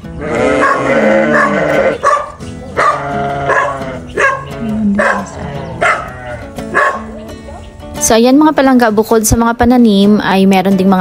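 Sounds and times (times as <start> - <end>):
background music: 0.0 - 11.0
dog barking: 0.6 - 7.2.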